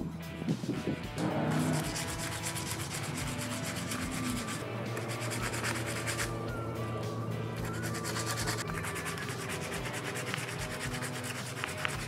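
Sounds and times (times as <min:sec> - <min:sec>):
sandpaper rasping on metal: 0:01.2 - 0:06.4, 0:07.6 - 0:12.0.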